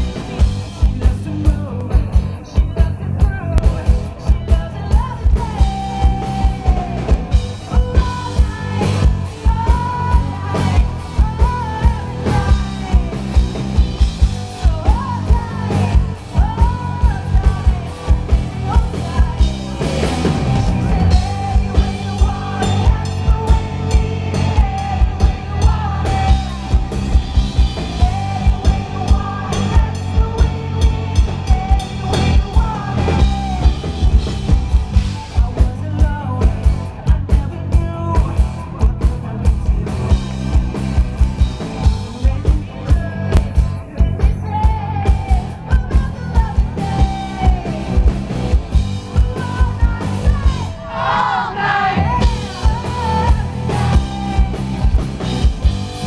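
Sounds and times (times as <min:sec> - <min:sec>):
person singing: 0:00.0 - 0:13.6, 0:14.3 - 0:40.6, 0:41.8 - 0:48.2, 0:49.1 - 0:55.2
live rock band playing: 0:00.0 - 0:56.0.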